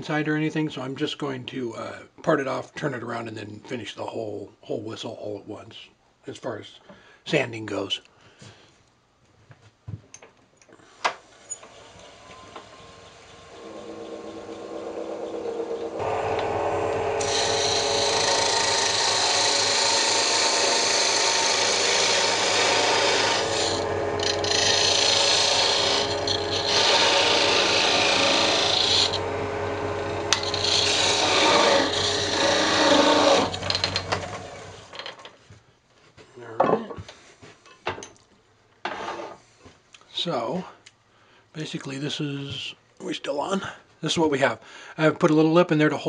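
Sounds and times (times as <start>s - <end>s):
turning tool scraping wood: 11.3s - 35.0s, 38.9s - 39.4s
wood lathe spinning: 11.3s - 35.1s.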